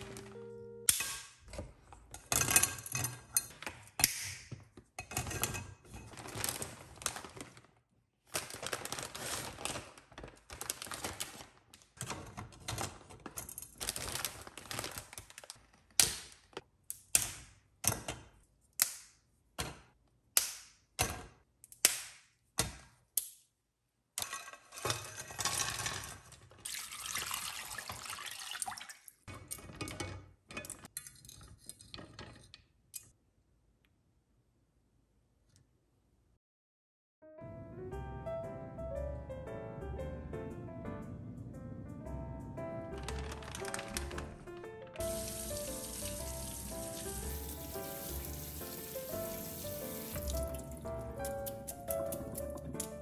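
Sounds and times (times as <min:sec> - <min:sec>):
pieces clattering into a pot: 0:00.9 - 0:07.5, 0:24.2 - 0:33.1
water pouring: 0:26.6 - 0:29.2, 0:45.0 - 0:51.2.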